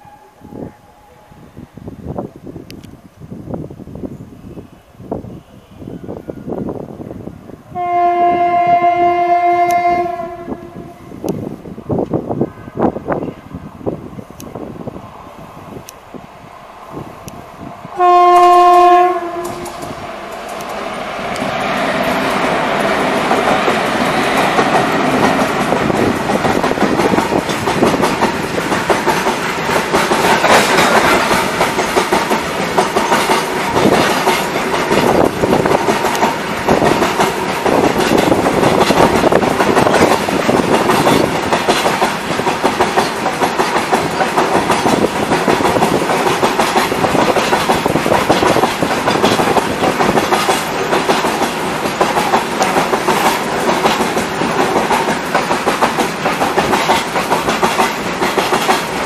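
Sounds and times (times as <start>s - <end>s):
freight train rumbling past: 0.0s - 59.0s
wheels clattering over rail joints: 22.0s - 59.0s.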